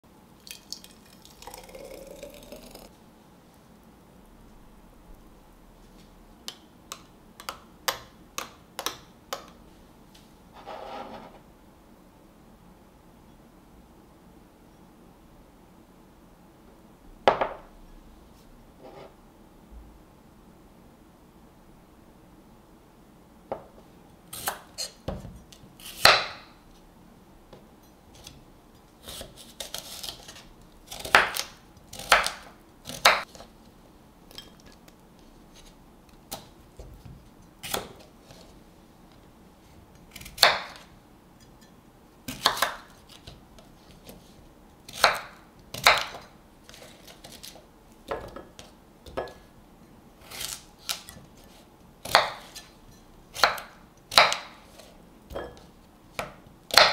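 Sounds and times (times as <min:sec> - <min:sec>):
knife chopping on wooden board: 0:42.3 - 0:42.9, 0:44.9 - 0:46.3, 0:52.0 - 0:52.7, 0:53.4 - 0:54.6, 0:56.2 - 0:56.9.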